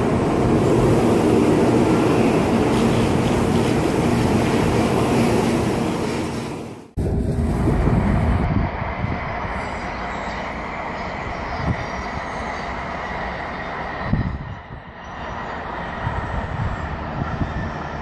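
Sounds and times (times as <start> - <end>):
bullet train rushing past: 0.0 - 18.0
distant train rumble: 0.0 - 18.0.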